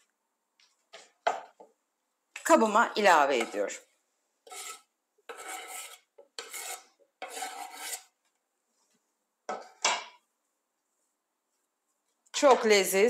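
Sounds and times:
scraping vegetables off cutting board: 4.4 - 8.2.

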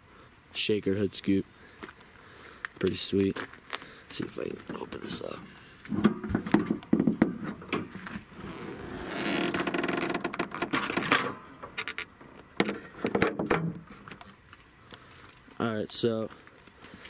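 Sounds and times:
car hood creaking scrape: 7.3 - 14.1.

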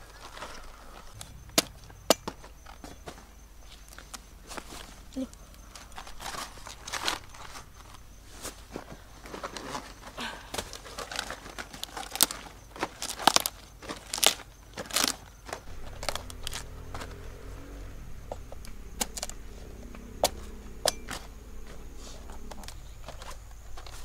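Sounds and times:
low steady hum: 15.5 - 24.0.

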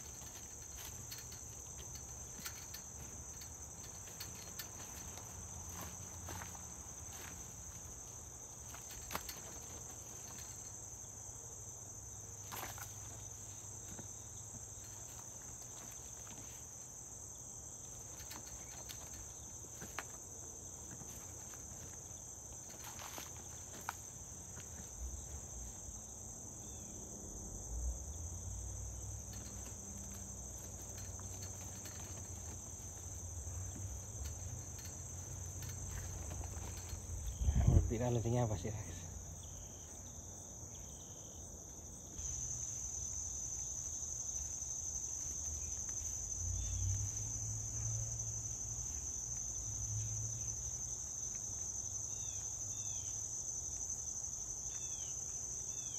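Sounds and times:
insects chirring: 0.0 - 55.9.

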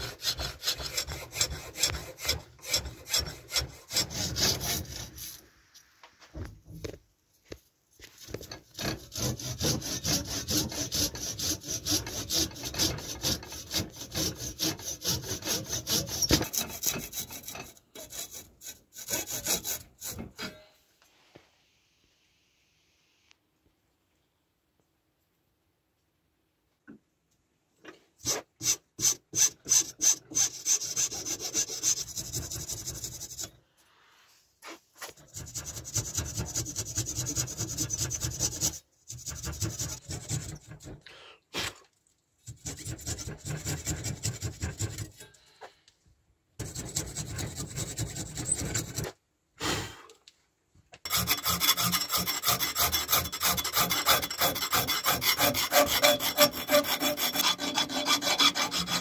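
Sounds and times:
rasp filing wood: 0.0 - 5.4, 8.2 - 20.6, 28.2 - 33.5, 34.6 - 41.0, 42.4 - 45.2, 46.6 - 49.2, 51.1 - 59.0.

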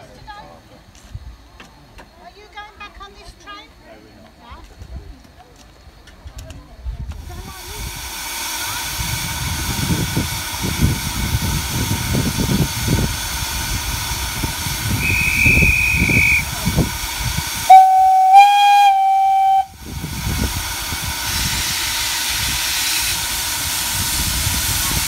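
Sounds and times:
low rush of steam: 0.0 - 25.0
steam locomotive whistle: 14.9 - 16.9, 17.6 - 19.8.

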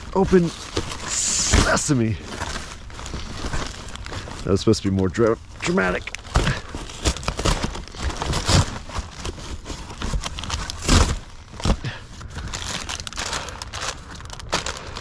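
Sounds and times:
plastic packaging crinkling: 0.0 - 15.0.

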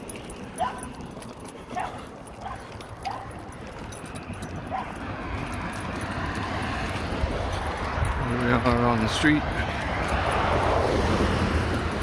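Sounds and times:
faint dog barks: 1.7 - 3.4, 4.7 - 5.0.

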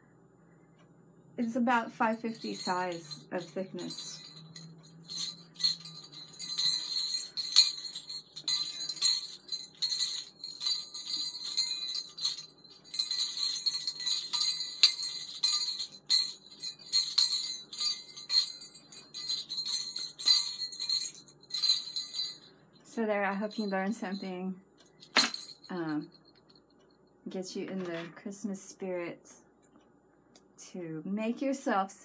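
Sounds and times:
jingle bells shaking: 1.4 - 22.5, 23.2 - 24.4, 25.0 - 26.6.

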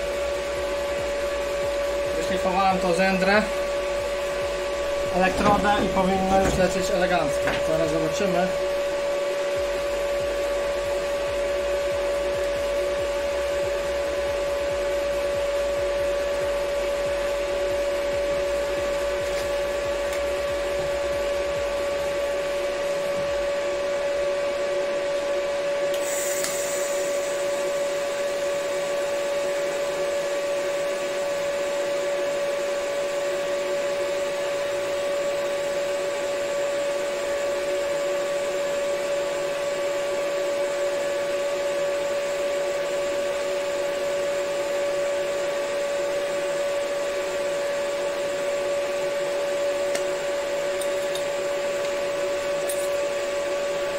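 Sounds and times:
welding arc hiss: 0.0 - 31.4
welding machine hum and whine: 0.0 - 53.9
arc crackle: 18.5 - 22.1, 25.9 - 27.7.

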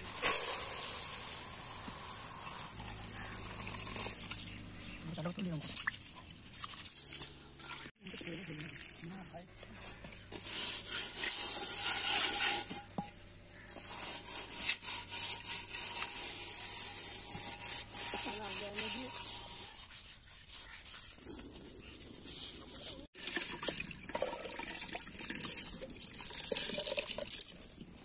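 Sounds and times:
hands scraping soil on metal pot: 0.0 - 4.2, 9.6 - 23.1.

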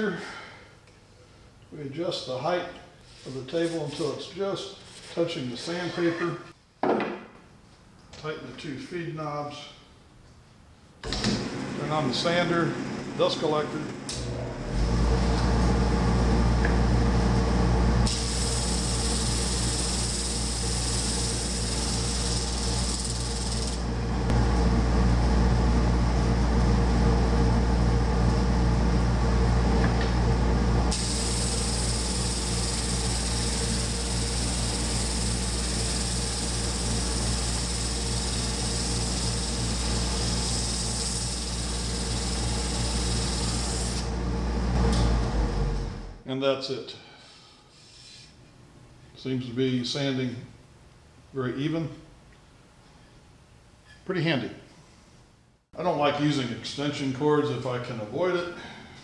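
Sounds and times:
drum sander humming: 11.0 - 46.2
sandpaper hissing on board: 18.1 - 23.8, 30.9 - 44.0.

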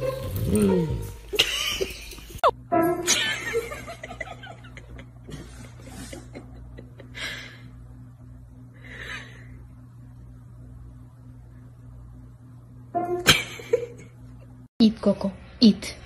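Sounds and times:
low hum: 0.0 - 16.0
person laughing softly: 4.1 - 7.7.

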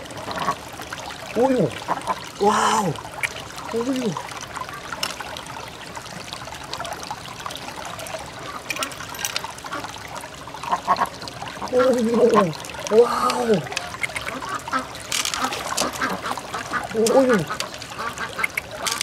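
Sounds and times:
person exclaiming: 2.4 - 3.0, 3.7 - 4.2, 11.7 - 13.7, 16.9 - 17.5
wet squishing: 11.7 - 19.0
small clicks: 13.3 - 14.4.

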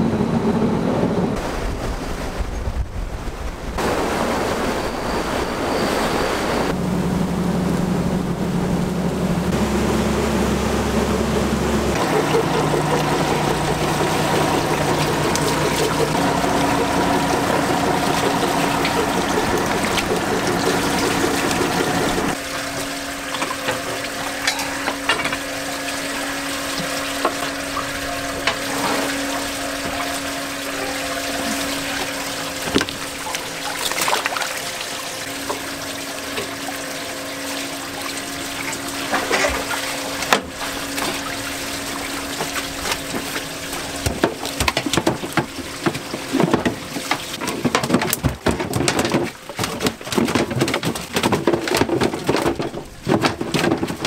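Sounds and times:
steady motor hum: 0.0 - 1.6, 3.8 - 54.0
seawater pouring and splashing: 8.9 - 54.0
dip net splashing and knocking: 37.4 - 54.0.

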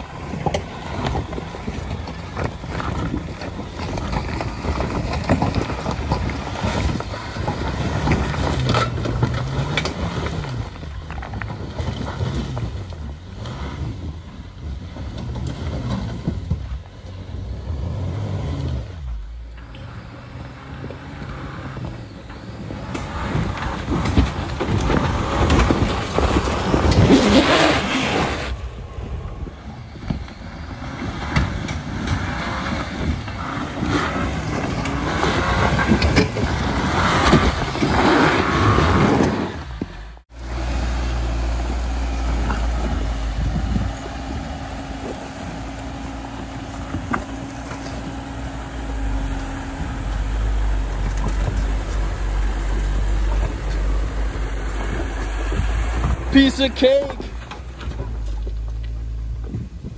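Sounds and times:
engine revving in surges: 0.0 - 59.9
low engine drone: 39.7 - 59.9.

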